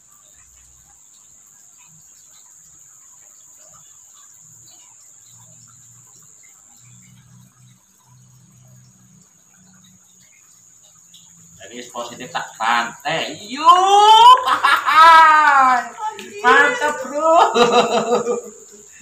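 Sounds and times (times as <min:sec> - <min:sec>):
faint ticks: 0:00.0 - 0:11.6
insects droning: 0:00.0 - 0:19.0.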